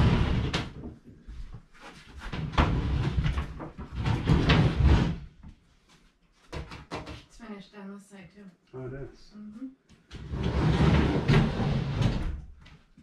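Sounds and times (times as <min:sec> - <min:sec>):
wooden cabinet scraping across floor: 0:00.0 - 0:00.8, 0:01.7 - 0:05.5, 0:10.1 - 0:12.4.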